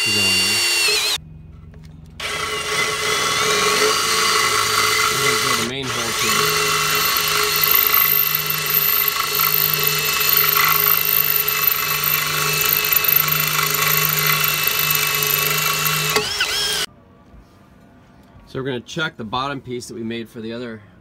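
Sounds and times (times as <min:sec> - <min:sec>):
power drill whining under load: 0:00.0 - 0:01.2, 0:02.2 - 0:16.9.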